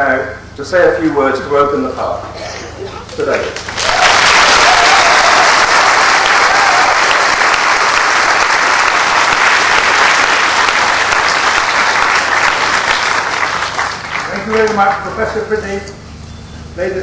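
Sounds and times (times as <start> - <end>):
audience applauding: 3.1 - 15.0.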